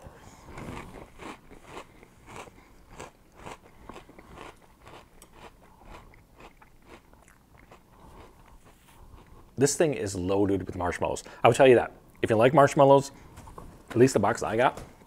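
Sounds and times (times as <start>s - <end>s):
person chewing crunchy cereal: 0.4s - 9.6s.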